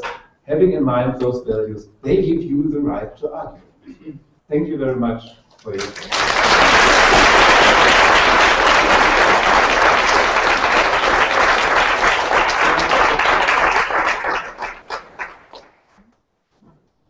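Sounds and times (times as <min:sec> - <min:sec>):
audience applauding: 0:05.7 - 0:15.9.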